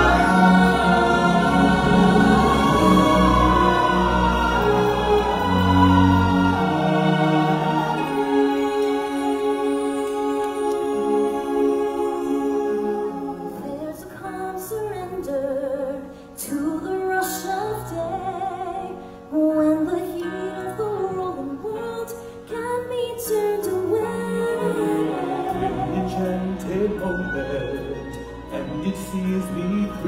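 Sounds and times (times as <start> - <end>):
woman singing into a microphone: 13.5 - 26.0.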